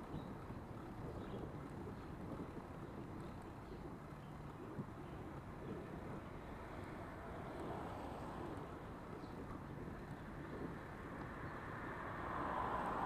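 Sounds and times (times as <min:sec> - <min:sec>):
wind rumble on microphone: 0:00.0 - 0:13.0
traffic on wet road: 0:05.7 - 0:13.0.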